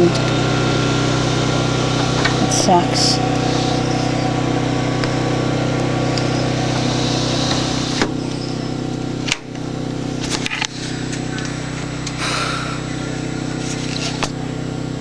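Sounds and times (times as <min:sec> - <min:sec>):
generator engine running: 0:00.0 - 0:15.0.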